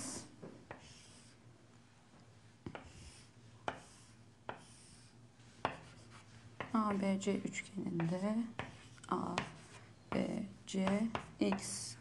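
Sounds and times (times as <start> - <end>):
chalk tapping on board: 0.7 - 1.3, 2.6 - 7.0, 8.0 - 11.8
chalk scraping on chalkboard: 0.7 - 1.4, 2.4 - 7.1, 8.0 - 11.6.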